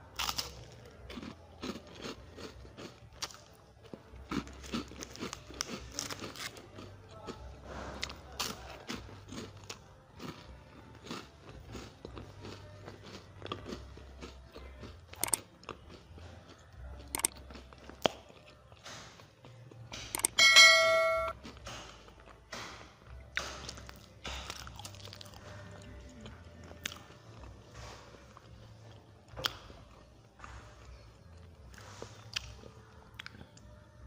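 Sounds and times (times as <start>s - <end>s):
chewing crunchy snack: 0.0s - 20.4s, 21.3s - 34.0s.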